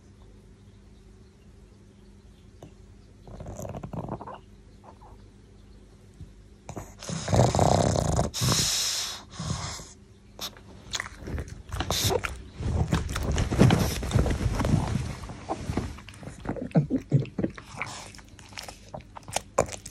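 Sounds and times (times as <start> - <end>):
dog snorting: 3.3 - 5.1, 6.7 - 19.9
dog scuffling in a blanket: 11.8 - 16.4.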